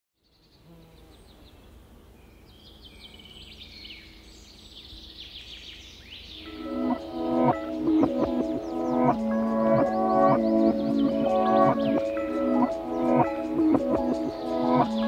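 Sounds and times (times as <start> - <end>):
birds chirping: 0.3 - 15.0
music: 6.4 - 15.0.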